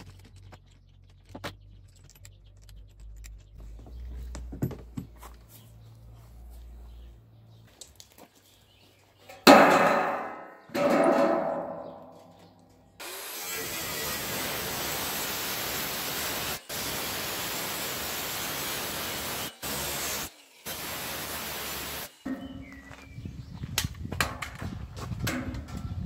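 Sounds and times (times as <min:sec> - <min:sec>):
ringing metal clangs: 0:09.3 - 0:13.0, 0:22.2 - 0:23.0
angle grinder cutting metal: 0:13.0 - 0:22.6.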